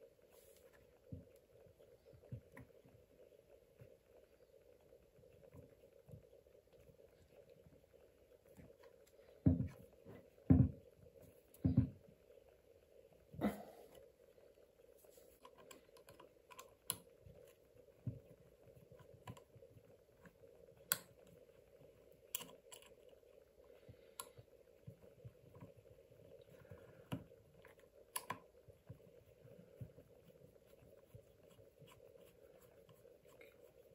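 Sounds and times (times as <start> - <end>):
faint steady hum: 0.0 - 33.9
small screws and parts clicking: 22.2 - 23.1.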